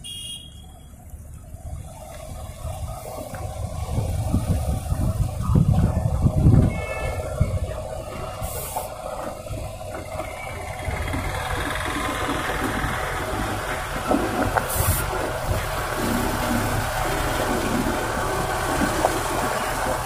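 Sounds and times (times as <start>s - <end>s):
truck diesel engine running: 0.0s - 20.0s
short air hisses: 8.4s - 9.0s.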